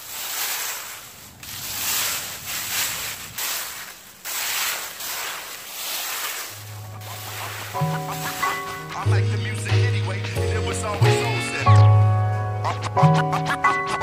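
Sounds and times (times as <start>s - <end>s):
rake sweeping dry leaves: 0.0s - 9.2s.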